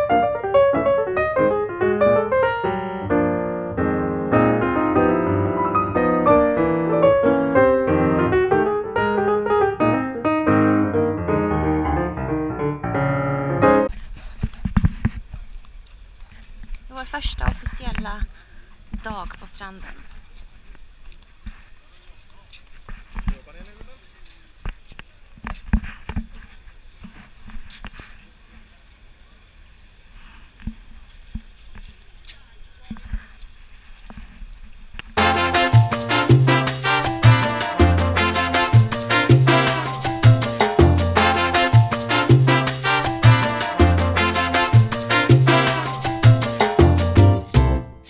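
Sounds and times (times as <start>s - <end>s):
piano music: 0.0s - 13.9s, 35.2s - 48.0s
outdoor noise: 13.8s - 48.0s.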